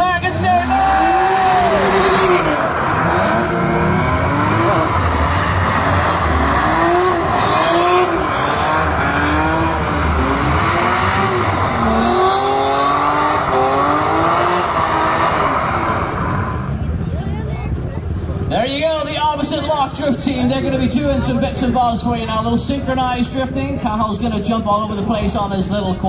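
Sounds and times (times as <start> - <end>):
car engine revving: 0.0 - 17.5
tyres spinning: 0.6 - 16.5.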